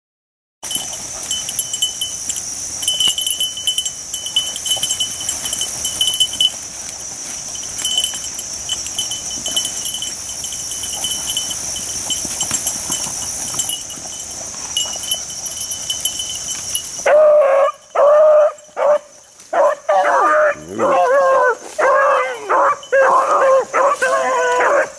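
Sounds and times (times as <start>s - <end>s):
rustling through brush: 0.6s - 17.1s, 20.8s - 24.9s
hound baying: 7.8s - 24.9s.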